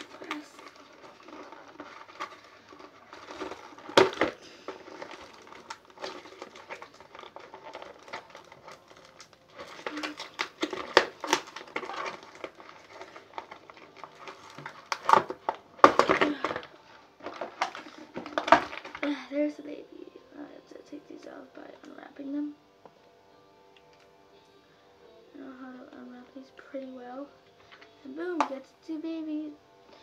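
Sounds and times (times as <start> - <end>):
cardboard and plastic packaging crinkling: 0.0 - 19.4.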